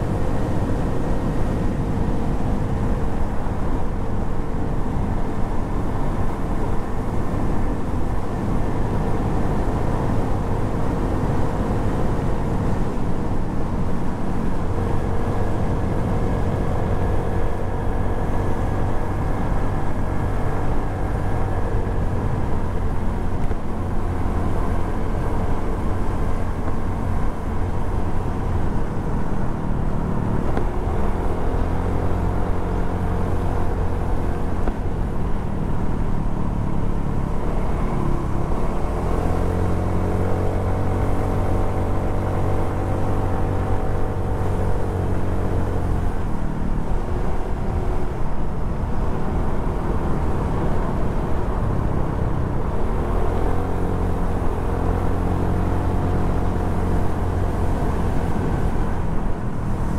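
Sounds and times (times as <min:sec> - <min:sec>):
road and wind noise: 0:00.0 - 0:59.9.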